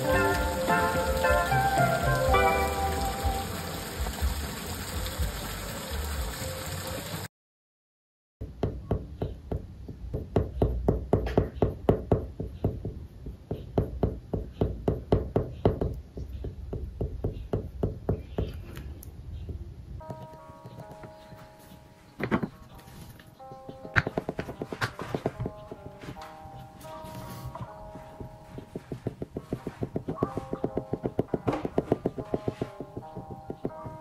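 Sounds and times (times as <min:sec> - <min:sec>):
rain falling: 0:00.0 - 0:07.3
soft music: 0:00.0 - 0:07.3, 0:20.0 - 0:34.0
oil pastel rubbing on paper: 0:28.8 - 0:30.6.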